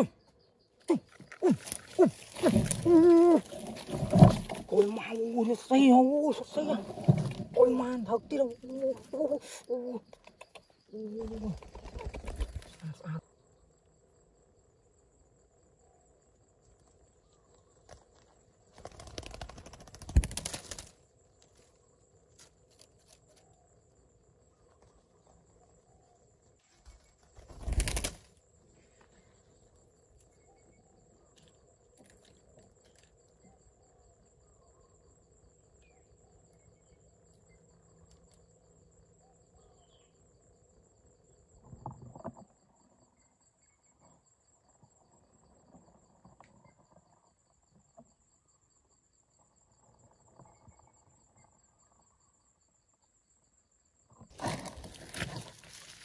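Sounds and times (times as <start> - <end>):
high insect chirring: 0.0 - 15.4
rustle: 1.1 - 5.6, 16.8 - 23.8, 54.1 - 56.0
bird wings fluttering: 11.2 - 12.8, 17.9 - 21.7, 26.6 - 28.4.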